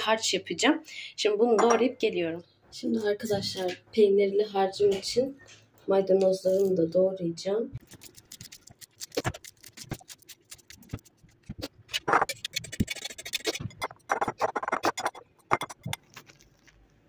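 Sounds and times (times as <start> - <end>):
utensil scraping: 7.8 - 16.8.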